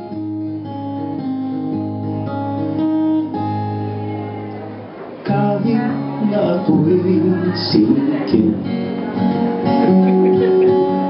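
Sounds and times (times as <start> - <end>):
acoustic guitar chords: 0.0 - 11.0.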